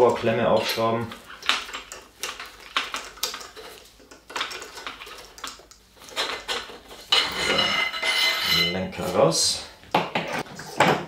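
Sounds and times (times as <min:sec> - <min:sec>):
ringing metallic scrape: 0:07.3 - 0:08.9.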